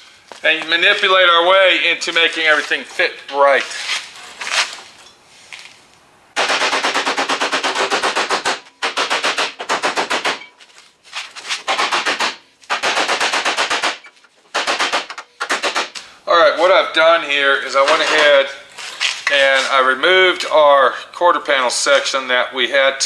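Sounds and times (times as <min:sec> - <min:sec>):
hammer striking sheet metal: 0:06.4 - 0:10.5.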